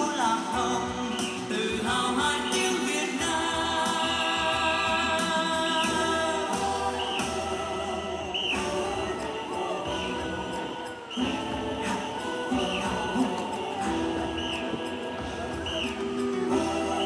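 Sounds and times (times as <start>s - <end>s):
choir singing long notes: 0.0s - 17.0s.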